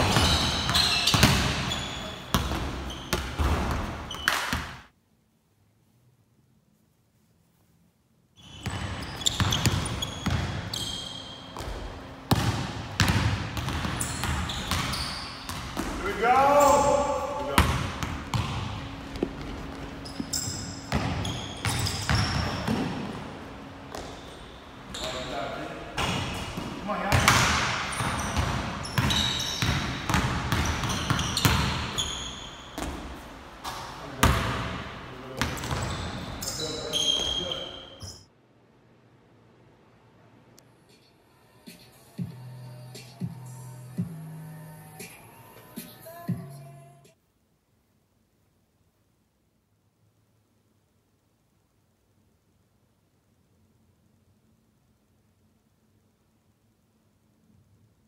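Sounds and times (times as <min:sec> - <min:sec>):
basketball bouncing on wooden floor: 0:00.0 - 0:04.6, 0:08.6 - 0:10.6, 0:11.5 - 0:16.0, 0:17.6 - 0:23.2, 0:23.9 - 0:24.3, 0:26.0 - 0:32.0
short high squeaks: 0:00.1 - 0:03.3, 0:08.4 - 0:11.6, 0:14.0 - 0:15.5, 0:20.0 - 0:22.7, 0:24.2 - 0:25.4, 0:27.9 - 0:29.7, 0:30.8 - 0:32.8, 0:35.8 - 0:38.3.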